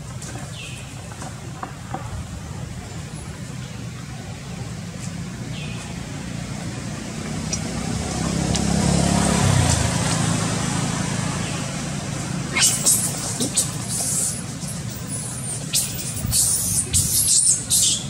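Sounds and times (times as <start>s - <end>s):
motor vehicle passing rumble: 2.1s - 18.0s.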